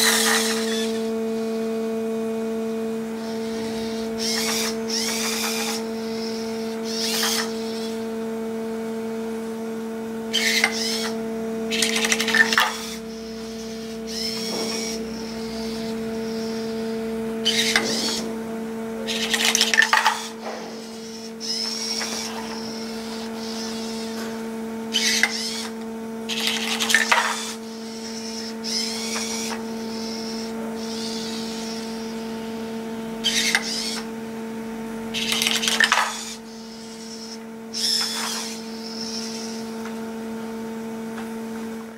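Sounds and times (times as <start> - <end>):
robot motors whirring: 0.0 - 1.7, 2.7 - 8.2, 10.3 - 34.2, 35.1 - 40.0
steady low hum: 0.0 - 41.9.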